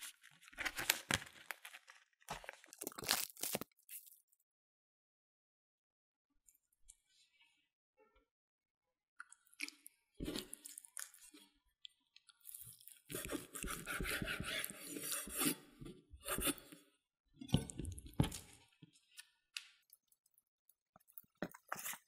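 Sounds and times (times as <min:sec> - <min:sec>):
knife slicing raw meat on board: 0:13.1 - 0:15.6.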